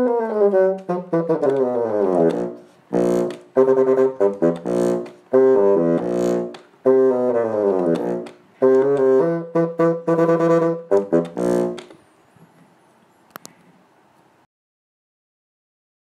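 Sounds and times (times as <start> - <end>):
solo bassoon playing: 0.0 - 12.0
small click: 13.3 - 13.7.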